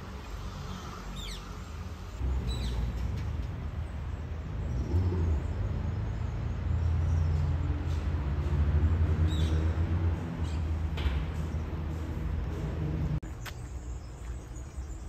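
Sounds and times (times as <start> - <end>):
distant traffic rumble: 0.0 - 15.0.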